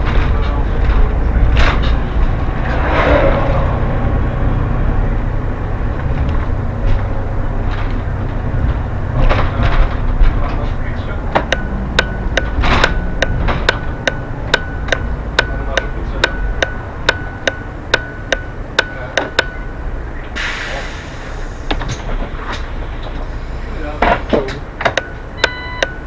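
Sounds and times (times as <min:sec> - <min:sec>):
bus engine and road rumble: 0:00.0 - 0:26.0
turn signal ticking: 0:11.2 - 0:20.4, 0:24.6 - 0:26.0
compressed air hiss: 0:20.4 - 0:21.7.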